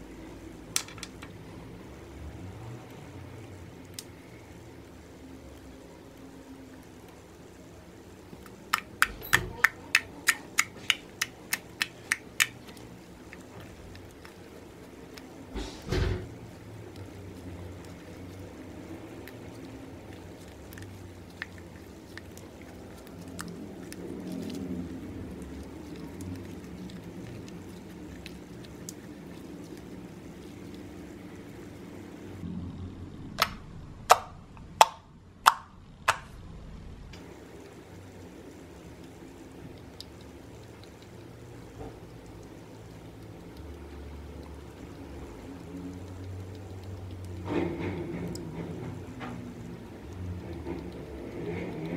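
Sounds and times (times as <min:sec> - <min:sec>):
slime squelch: 0:08.0 - 0:32.4
hands squishing slime: 0:08.4 - 0:32.0.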